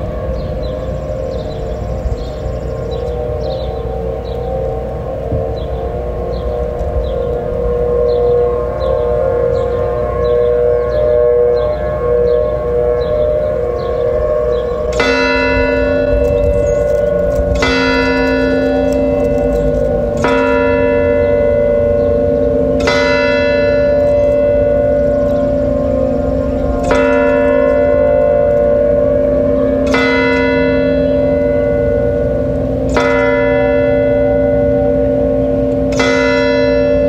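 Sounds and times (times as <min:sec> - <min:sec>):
wind rumble on microphone: 0:00.0 - 0:33.0
warning sirens steady tone: 0:00.0 - 0:37.0
bell striking: 0:14.9 - 0:37.0.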